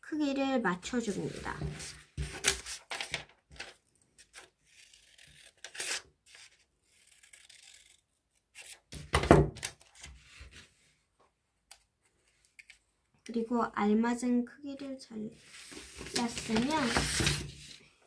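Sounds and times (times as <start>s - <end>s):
paper rustling: 1.3s - 4.5s, 15.4s - 17.8s
scissors cutting paper: 4.3s - 8.0s.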